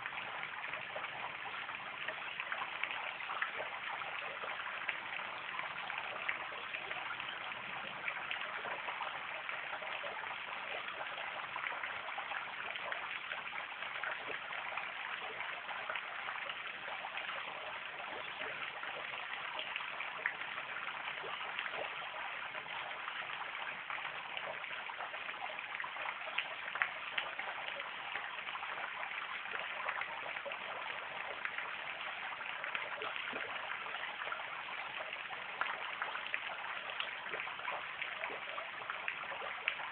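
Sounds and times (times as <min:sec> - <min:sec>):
fountain splashing into pond: 0:00.0 - 0:39.9.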